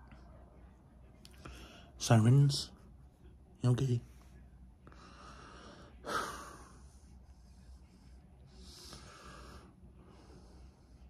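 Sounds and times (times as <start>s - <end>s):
person breathing: 1.4s - 2.0s, 4.8s - 11.0s.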